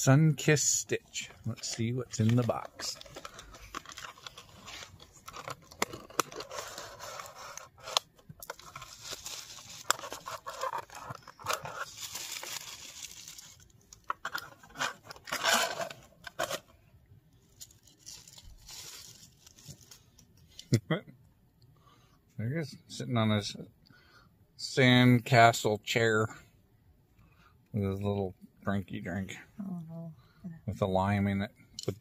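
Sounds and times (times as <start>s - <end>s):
packaging crinkling and rustling: 1.2s - 16.7s, 17.5s - 20.5s.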